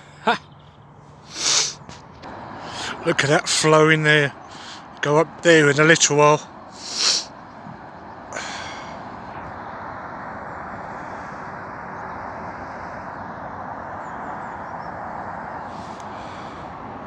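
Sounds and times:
floodwater rushing: 1.4 - 13.0.

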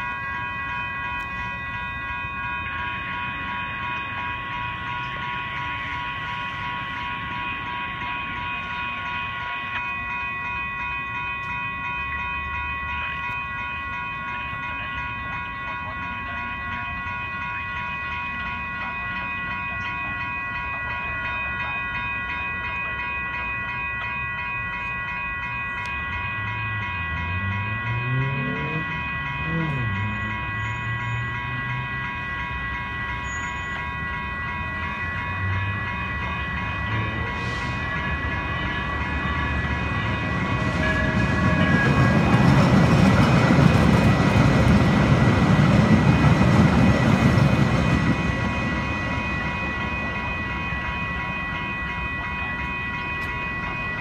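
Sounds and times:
railroad crossing bells ringing: 0.0 - 54.0
train wheels rumbling on rails: 0.0 - 54.0.

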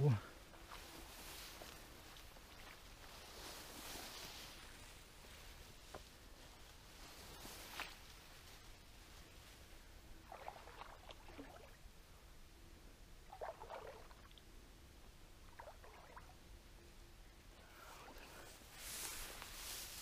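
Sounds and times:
footsteps through wet grass: 0.5 - 11.5, 17.8 - 20.0.

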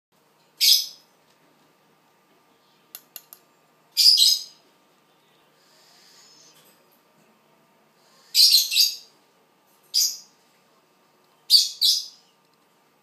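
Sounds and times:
owl hissing screeches: 5.6 - 6.6, 8.0 - 9.0.

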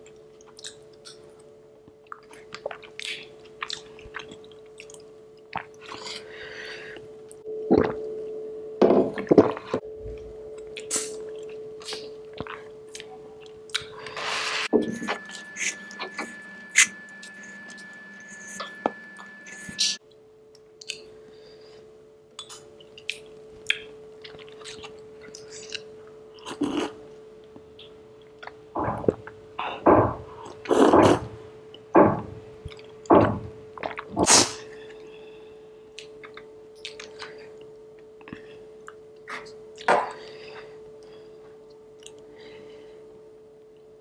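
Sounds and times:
faint steady hum: 0.0 - 44.0
soft chewing: 20.5 - 21.1, 22.4 - 29.4, 35.9 - 39.9.

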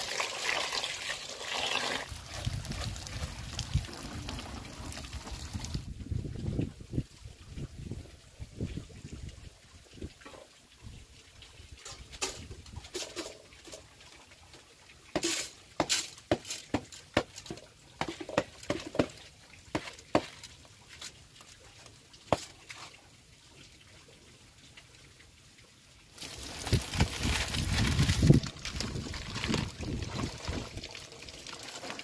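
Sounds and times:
dry palm leaves rustling: 26.2 - 30.8
rice pattering into metal pot: 26.2 - 32.0.

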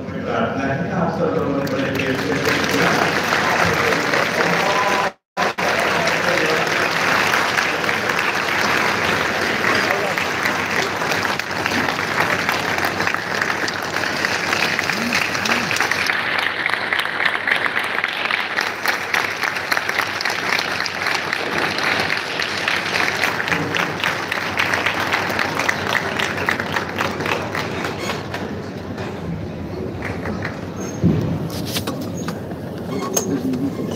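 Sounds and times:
audience applauding: 1.5 - 28.7, 30.0 - 30.8.

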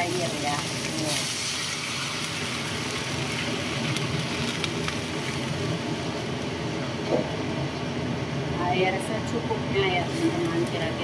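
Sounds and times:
water sizzling in hot wok: 0.0 - 6.8, 9.9 - 11.0.

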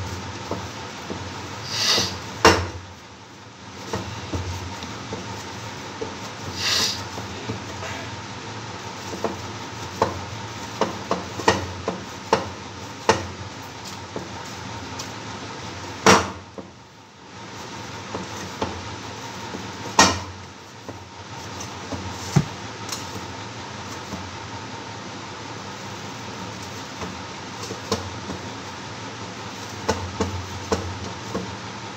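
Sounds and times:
steady background noise: 0.0 - 31.9
dough knocking in steel bowl: 9.0 - 13.4, 19.5 - 23.2.

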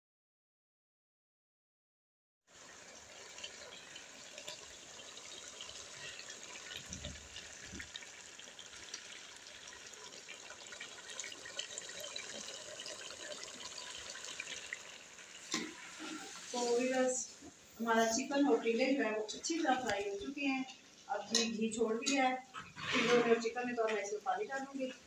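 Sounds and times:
food sizzling in a pot: 2.5 - 18.3.

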